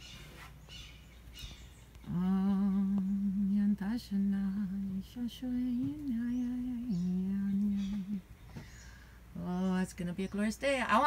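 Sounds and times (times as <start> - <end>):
woman humming a slow tune: 2.0 - 8.3.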